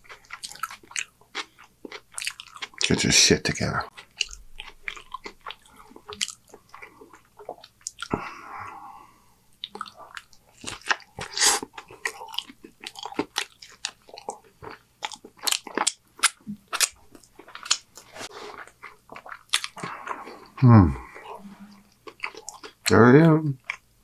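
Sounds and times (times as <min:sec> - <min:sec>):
close chewing with wet mouth clicks: 0:00.0 - 0:03.0, 0:03.9 - 0:08.1, 0:09.6 - 0:20.6, 0:21.9 - 0:22.9.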